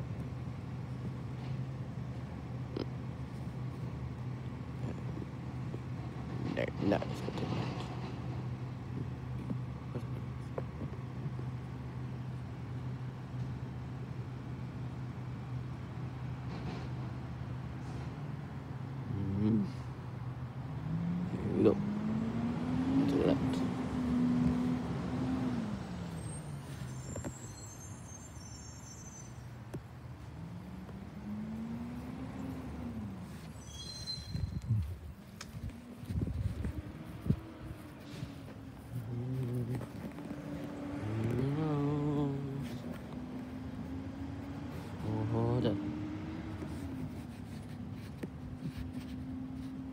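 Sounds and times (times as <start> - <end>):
truck engine humming: 0.0 - 21.0, 23.2 - 49.9
faint high squeaks: 26.1 - 29.7, 33.4 - 34.8.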